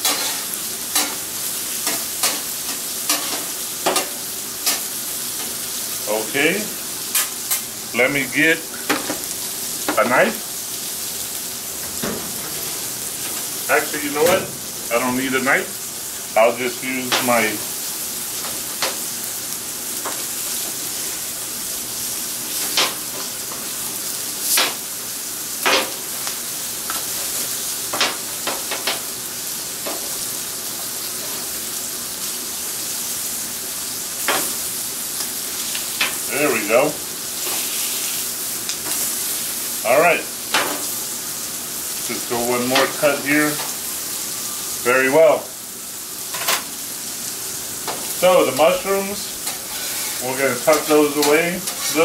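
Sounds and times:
metal spatula chopping on steel: 0:00.0 - 0:00.4
food sizzling on griddle: 0:00.0 - 0:52.0.

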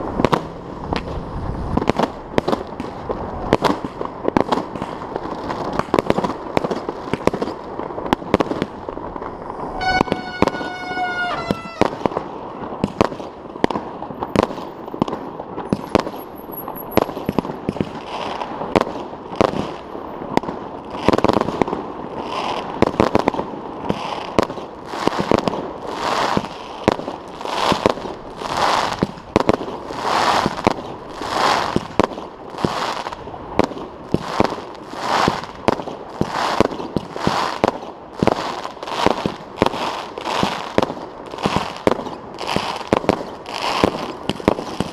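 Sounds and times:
firework shots with rushing bursts: 0:00.0 - 0:16.2
fireworks bangs: 0:00.0 - 0:44.9.

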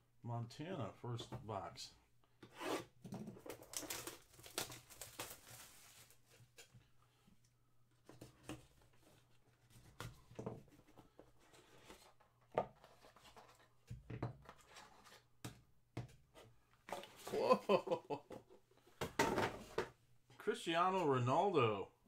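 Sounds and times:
packaging crinkling and tearing: 0:03.5 - 0:06.1.

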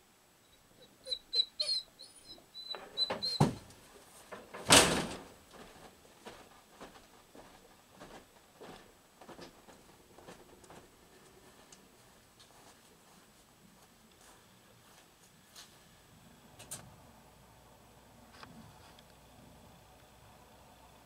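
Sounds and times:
door banging shut: 0:03.1 - 0:03.7, 0:04.5 - 0:05.3
trailer door opening thunk: 0:04.6 - 0:05.3
footsteps on wooden boards: 0:05.5 - 0:10.9.

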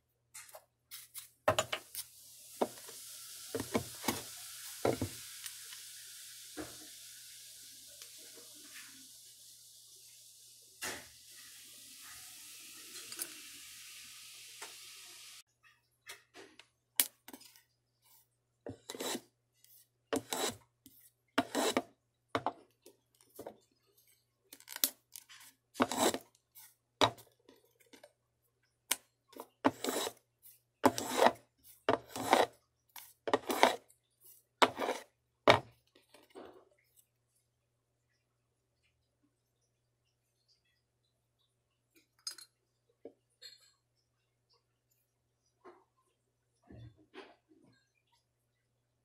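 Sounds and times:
faint steady hiss: 0:01.2 - 0:15.5
hand tool scraping wood: 0:18.9 - 0:19.2, 0:20.2 - 0:20.6, 0:21.4 - 0:21.9, 0:25.8 - 0:26.2, 0:29.6 - 0:30.2, 0:30.8 - 0:32.5, 0:33.3 - 0:33.8, 0:34.6 - 0:35.6.

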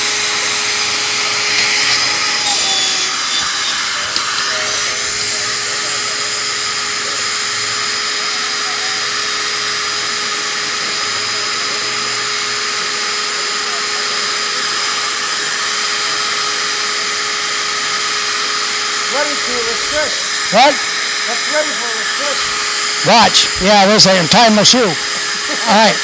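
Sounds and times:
small electric fan motor whirring: 0:00.0 - 0:26.0.

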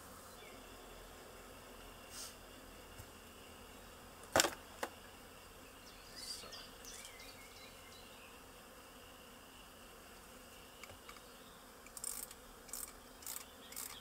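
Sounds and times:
bees buzzing: 0:00.0 - 0:14.0.

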